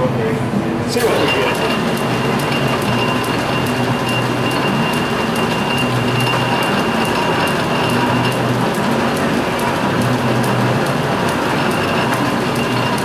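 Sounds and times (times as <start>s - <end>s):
thin whine: 0.9s - 8.6s
lathe gear train clatter: 1.0s - 13.0s.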